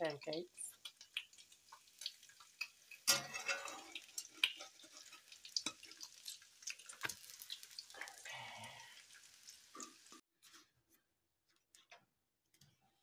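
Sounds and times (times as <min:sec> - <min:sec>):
food frying crackling and popping: 0:00.0 - 0:10.3.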